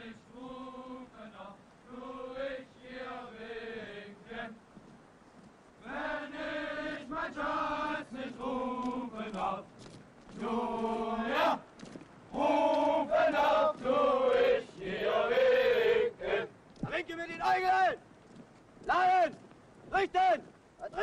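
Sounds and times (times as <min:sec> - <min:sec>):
men singing in unison: 0:00.0 - 0:04.6, 0:05.8 - 0:09.7, 0:10.4 - 0:11.6, 0:12.3 - 0:16.5.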